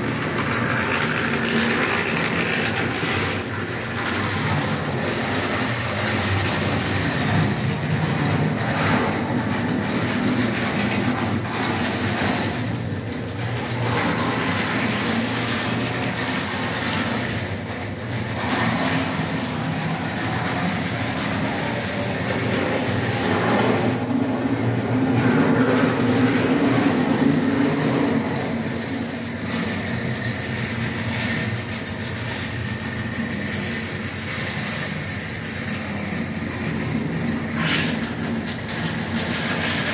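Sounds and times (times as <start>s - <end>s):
high whine: 0.0s - 31.4s
model train wheels rumbling on rails: 0.0s - 39.9s.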